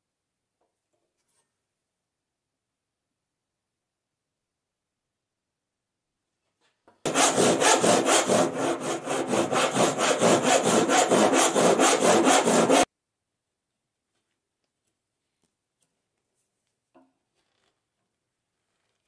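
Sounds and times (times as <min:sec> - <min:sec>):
hand saw cutting wood: 0:07.1 - 0:12.9.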